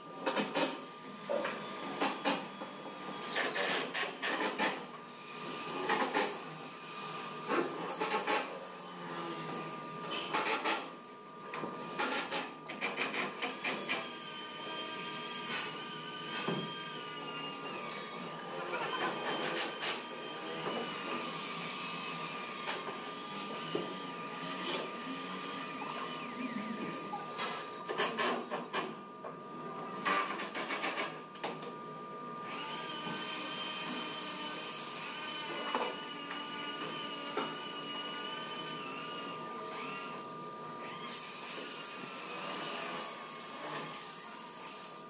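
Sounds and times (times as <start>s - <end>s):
power tool whirring: 0.2s - 29.0s, 29.8s - 31.2s, 32.4s - 45.0s
steady high hum: 14.4s - 30.0s.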